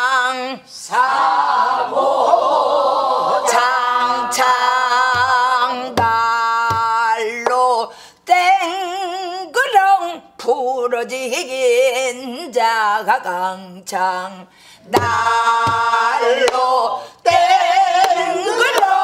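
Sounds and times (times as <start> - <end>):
person singing folk song: 3.5 - 19.0
barrel drum strokes: 15.0 - 16.0.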